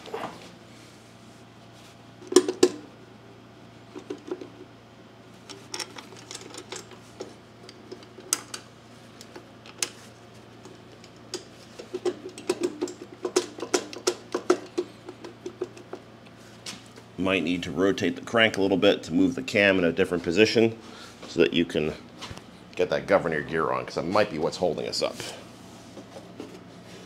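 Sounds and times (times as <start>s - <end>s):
faint steady hum: 0.0s - 27.0s
metal cover clicking and knocking: 11.0s - 16.0s.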